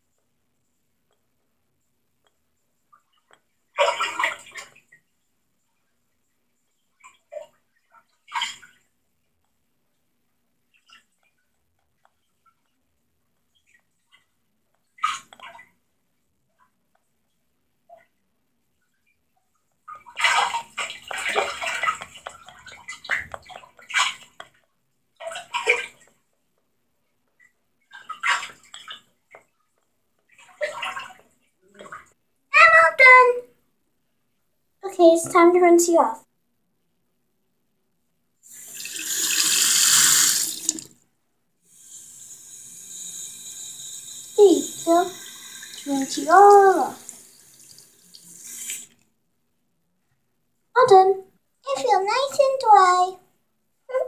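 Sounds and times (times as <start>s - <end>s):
water splashing in a small dish: 19.9s - 24.6s, 38.5s - 41.0s
tap water running into basin: 20.3s - 24.6s, 38.5s - 41.0s, 41.7s - 49.0s.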